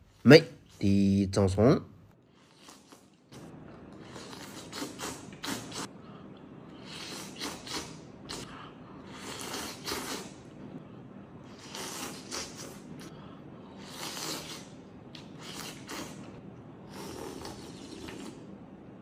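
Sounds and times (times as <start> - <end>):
person slurping noodles: 2.4 - 6.0, 6.7 - 10.5, 11.4 - 13.1, 13.7 - 18.5.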